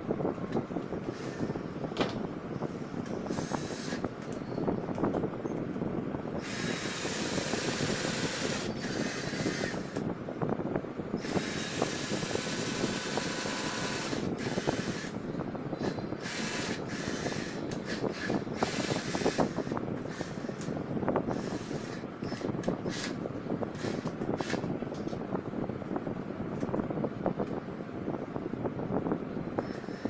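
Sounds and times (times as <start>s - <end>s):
cordless drill motor: 1.1s - 1.6s, 3.3s - 4.4s, 6.4s - 10.1s, 11.2s - 15.2s, 15.8s - 24.7s, 29.6s - 30.0s
drill grinding into chipboard: 3.3s - 4.0s, 6.4s - 10.0s, 11.2s - 15.2s, 15.8s - 20.7s, 21.3s - 23.2s, 23.8s - 24.7s.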